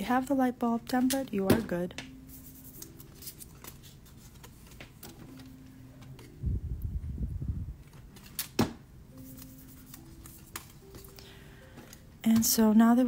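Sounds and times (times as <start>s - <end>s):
cardstock clicks and rustles: 2.8s - 6.4s, 7.8s - 11.2s.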